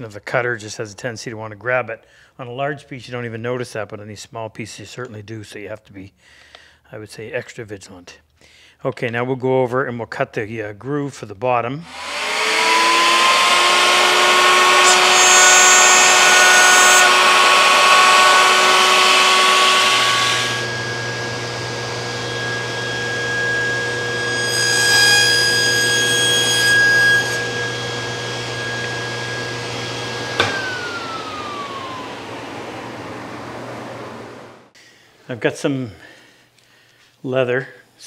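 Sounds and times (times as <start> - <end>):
power tool whine: 11.8 - 34.7
table saw humming: 11.8 - 34.7.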